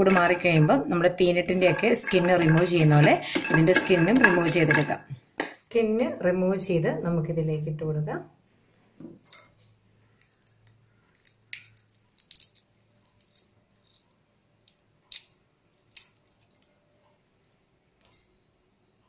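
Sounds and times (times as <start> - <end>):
cocoa shells cracking by hand: 10.2 - 16.8.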